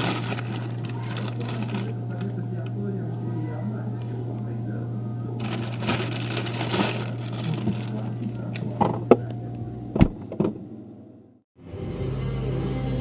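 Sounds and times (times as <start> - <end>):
plastic bag rustling: 0.0 - 2.7, 5.4 - 9.0
steady low hum: 0.0 - 11.4.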